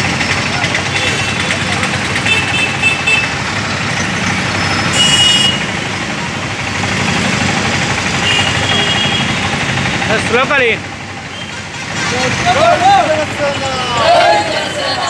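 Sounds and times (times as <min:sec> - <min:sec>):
road traffic: 0:00.0 - 0:15.0
car horn tones: 0:04.9 - 0:05.7, 0:08.2 - 0:09.4.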